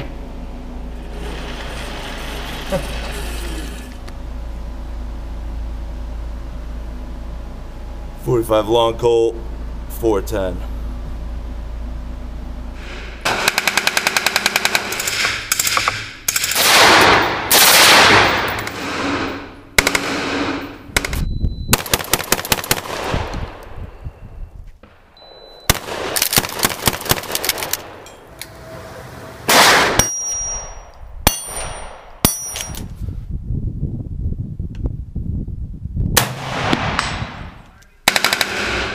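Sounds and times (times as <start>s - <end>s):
low hum: 0.0s - 38.9s
rapid gunfire burst: 13.3s - 15.8s, 21.7s - 23.3s, 25.7s - 27.5s, 38.1s - 38.9s
metallic dings of steel targets: 30.0s - 32.9s.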